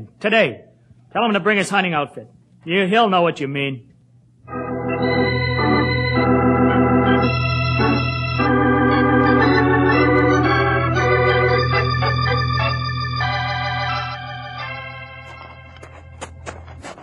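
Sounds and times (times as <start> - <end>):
organ chords: 4.4 - 17.0.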